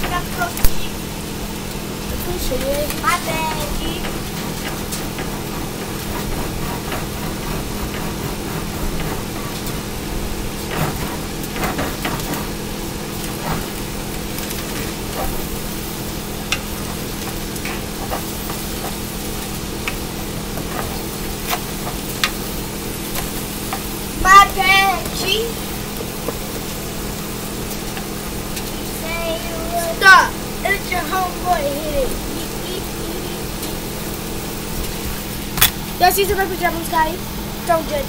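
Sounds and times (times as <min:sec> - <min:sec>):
steady low hum: 0:00.0 - 0:38.0
spatula scraping pan: 0:02.3 - 0:25.3
spatula tapping pan: 0:14.4 - 0:22.5.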